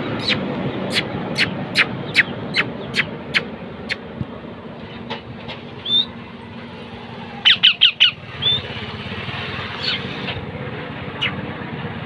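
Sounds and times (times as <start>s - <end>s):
low engine hum: 0.0s - 12.0s
parakeet squawking: 0.2s - 4.0s, 5.8s - 6.1s, 7.4s - 8.8s, 9.8s - 10.2s.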